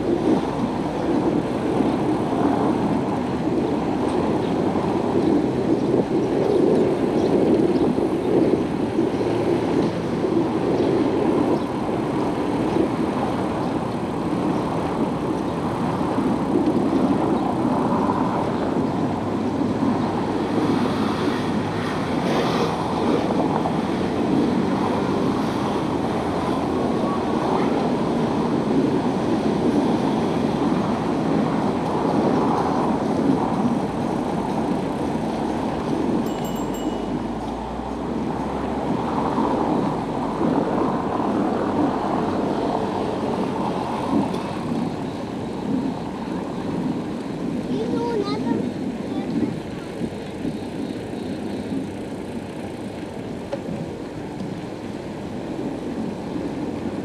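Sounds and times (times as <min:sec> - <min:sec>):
rushing road noise: 0:00.0 - 0:57.0
car traffic: 0:08.6 - 0:57.0
high-pitched ring: 0:36.3 - 0:37.5.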